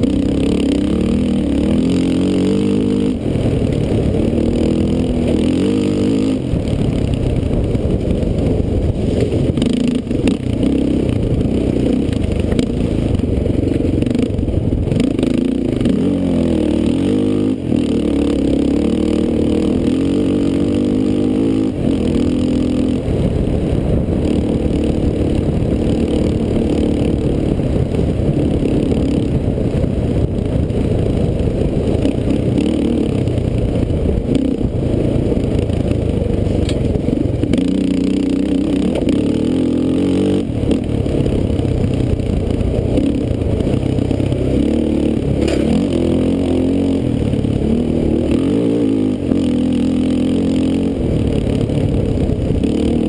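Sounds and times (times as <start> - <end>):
atv engine revving: 0.0 - 53.0
rattles and knocks over rough ground: 45.3 - 45.8.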